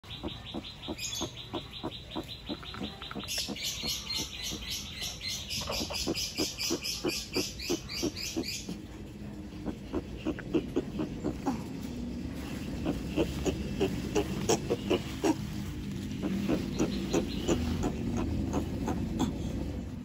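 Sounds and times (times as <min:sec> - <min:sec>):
high chirping: 0:00.0 - 0:08.8, 0:16.1 - 0:19.3
tortoise clucking: 0:00.0 - 0:20.0.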